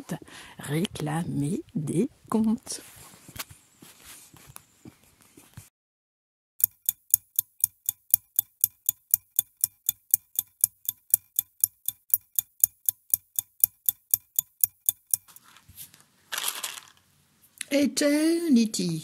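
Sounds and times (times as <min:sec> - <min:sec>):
clock ticking: 0:06.6 - 0:15.4.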